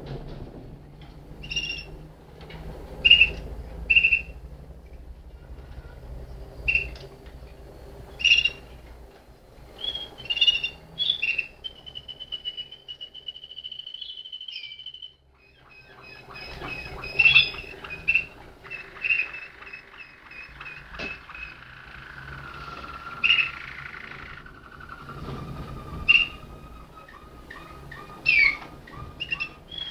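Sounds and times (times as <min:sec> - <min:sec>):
canaries singing: 0:01.2 - 0:29.9.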